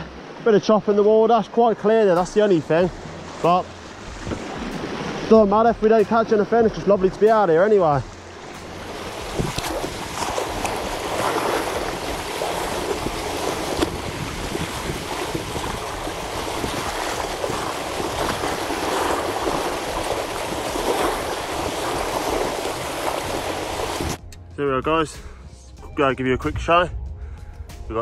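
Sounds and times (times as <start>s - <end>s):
waves washing over rocks: 0.0s - 24.2s
wind rumbling on microphone: 2.8s - 5.8s, 7.9s - 24.2s.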